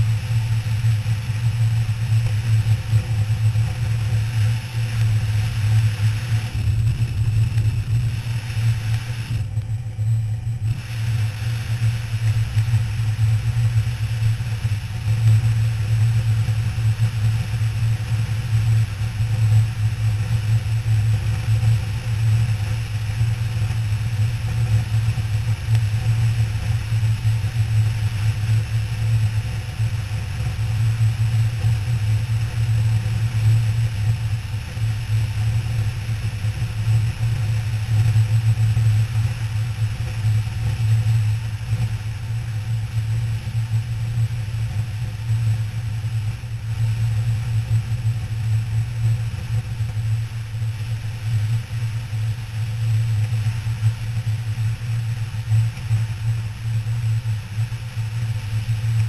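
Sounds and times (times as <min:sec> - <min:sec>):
wind rush: 0:00.0 - 0:19.1.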